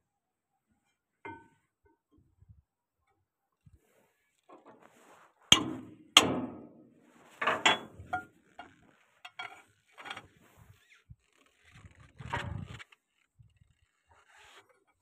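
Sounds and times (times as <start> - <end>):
metal-on-metal knocks: 5.5 - 6.7, 7.4 - 8.3
metal clanks and clicks: 7.4 - 10.3.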